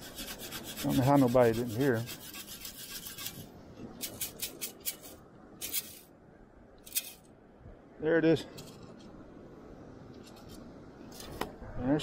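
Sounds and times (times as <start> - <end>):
sand scraping in scoop: 0.0 - 6.1.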